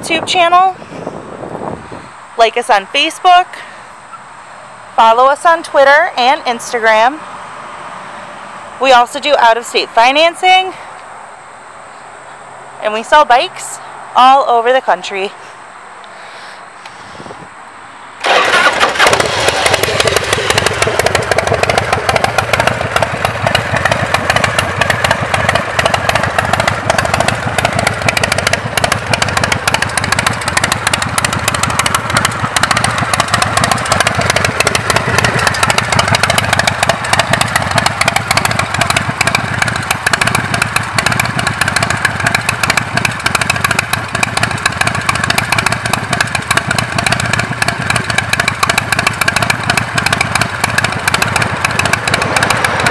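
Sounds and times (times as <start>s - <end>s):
motorcycle engine idling: 18.2s - 52.9s.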